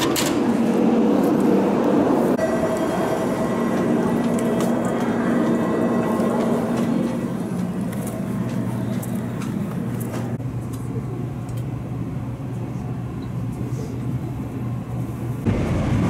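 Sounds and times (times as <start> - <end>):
steady low train carriage hum: 0.0 - 16.0.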